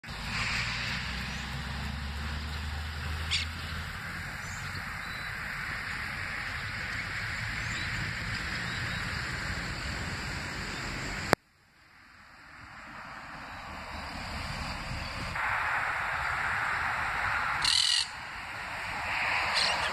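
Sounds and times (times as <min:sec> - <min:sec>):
steady hiss: 0:00.0 - 0:08.0, 0:13.7 - 0:19.9
wind rumbling on microphone: 0:12.4 - 0:19.9.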